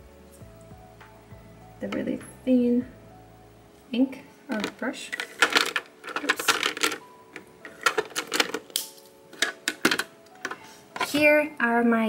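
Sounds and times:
plastic markers clicking and clattering: 4.5s - 11.2s.

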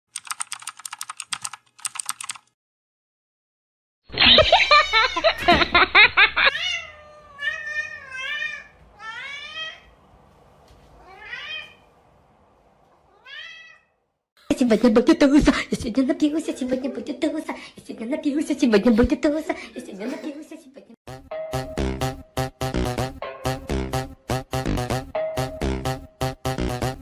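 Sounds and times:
rapid typing-like clicks: 0.1s - 2.6s
cat meowing: 6.5s - 9.9s, 11.0s - 11.9s, 13.1s - 14.0s.

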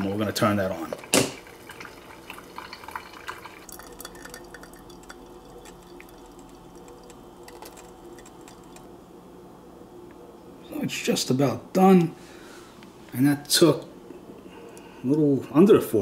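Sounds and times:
coffee dripping into glass carafe: 1.1s - 8.9s.

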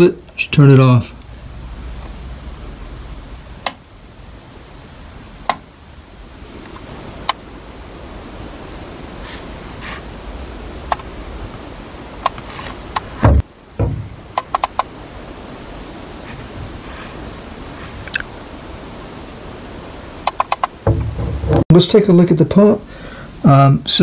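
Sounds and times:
steady hiss: 0.0s - 24.0s
bump: 13.2s - 14.3s, 20.8s - 21.7s.

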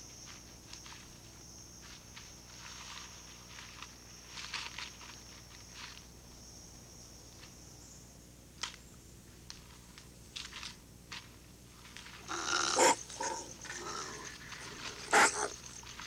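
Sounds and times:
animal resonant cries: 12.2s - 15.8s.

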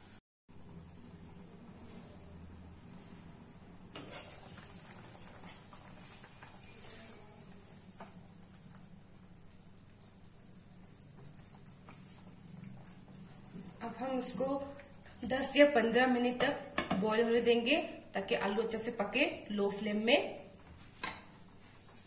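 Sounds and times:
curry simmering with bubbling pops: 4.3s - 15.5s.

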